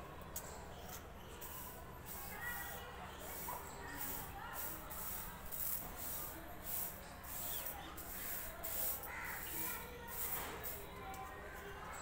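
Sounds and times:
lentils raked across steel plate: 0:03.3 - 0:10.8.

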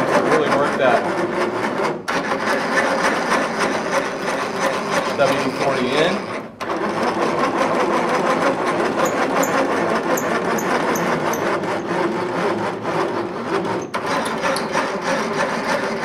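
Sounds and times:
lead screws grinding and rubbing: 0:00.4 - 0:16.0.

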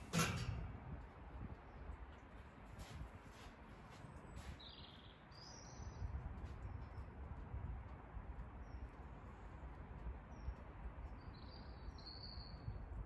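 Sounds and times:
bird chirps: 0:11.2 - 0:12.7.

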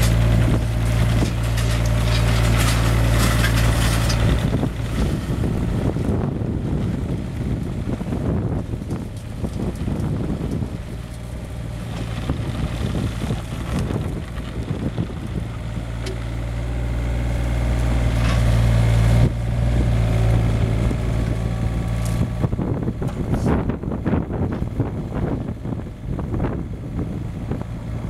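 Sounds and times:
excavator diesel engine running: 0:00.0 - 0:28.0
wind buffeting microphone: 0:00.0 - 0:28.0.

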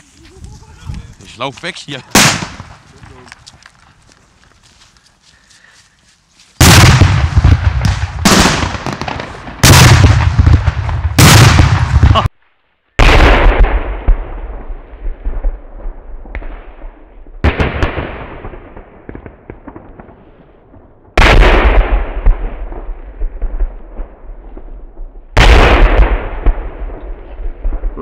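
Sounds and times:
fireworks bangs: 0:01.9 - 0:03.4, 0:06.6 - 0:12.3, 0:13.0 - 0:28.0.

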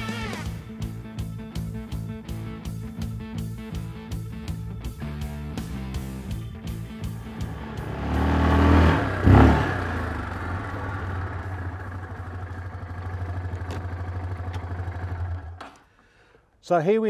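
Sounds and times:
quad bike engine: 0:05.6 - 0:15.9.

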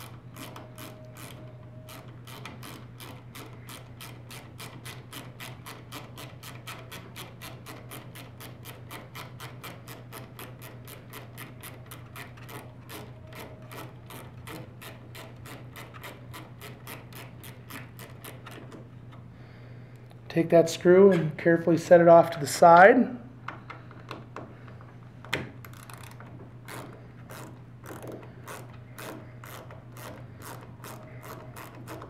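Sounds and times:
ratcheting screwdriver clicking: 0:25.6 - 0:32.0.

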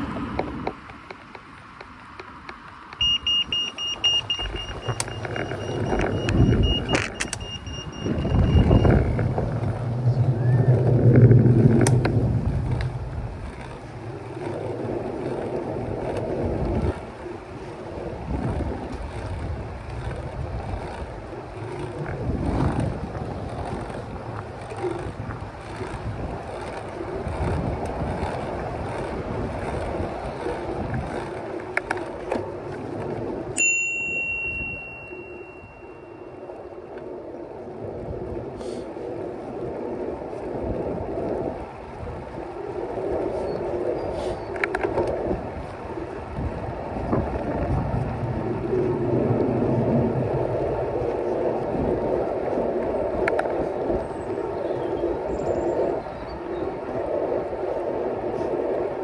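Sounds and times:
wind rushing on microphone: 0:00.0 - 0:59.0
bicycle bell ringing: 0:03.0 - 0:08.9, 0:33.6 - 0:36.5.

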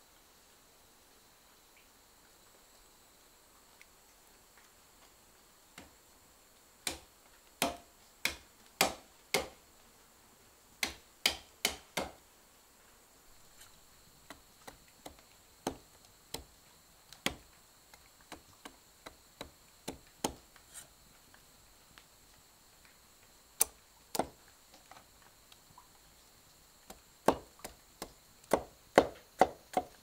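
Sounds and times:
machete chopping wood: 0:06.8 - 0:09.6, 0:10.8 - 0:12.2, 0:14.3 - 0:16.5, 0:17.2 - 0:17.5, 0:18.3 - 0:20.4, 0:23.6 - 0:24.4, 0:27.2 - 0:30.0.

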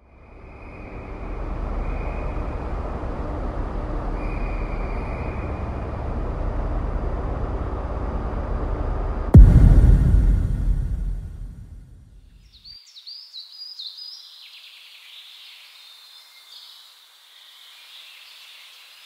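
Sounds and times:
steady low rumbling: 0:09.3 - 0:12.1.

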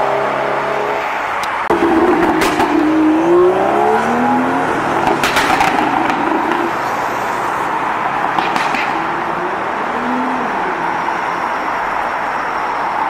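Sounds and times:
car accelerating: 0:00.0 - 0:13.0
city traffic noise: 0:00.0 - 0:13.0.

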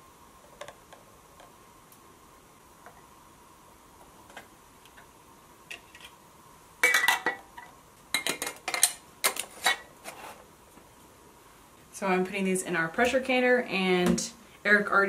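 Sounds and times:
glass jars and metal lids clinking: 0:06.8 - 0:07.5.

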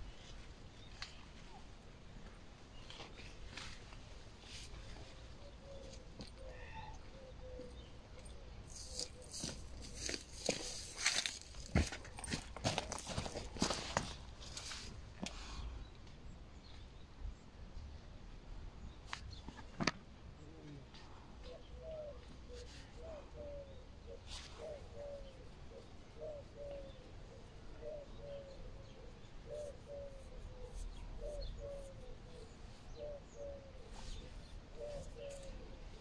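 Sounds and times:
small birds chirping: 0:00.1 - 0:14.9, 0:20.4 - 0:36.0
dove cooing: 0:04.9 - 0:10.6, 0:20.4 - 0:36.0.

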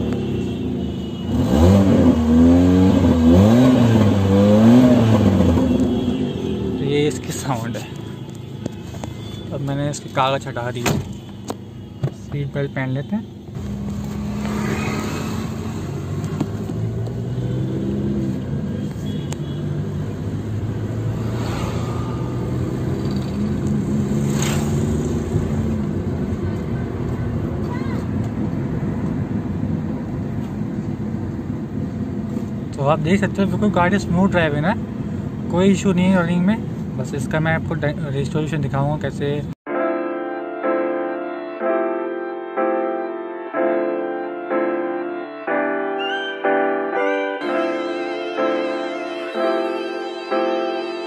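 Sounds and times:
road rumble: 0:00.0 - 0:39.6
car engine revving: 0:01.3 - 0:06.9, 0:13.6 - 0:18.8, 0:19.8 - 0:26.3.

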